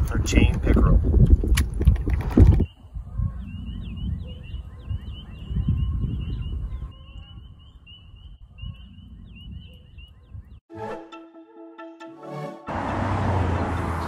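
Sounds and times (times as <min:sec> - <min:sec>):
wind rumbling on microphone: 0:00.0 - 0:10.6.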